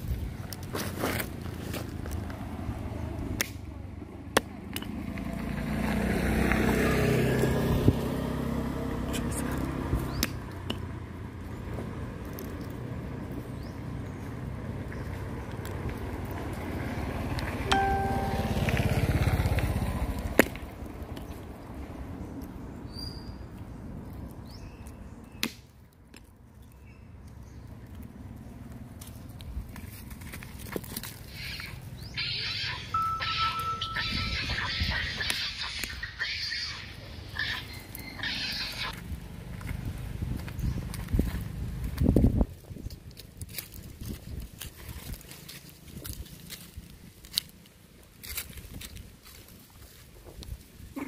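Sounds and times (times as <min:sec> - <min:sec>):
vehicle engine hum: 0:00.0 - 0:51.0
vehicle engine passing: 0:04.6 - 0:22.9
short steady tone: 0:17.7 - 0:18.9.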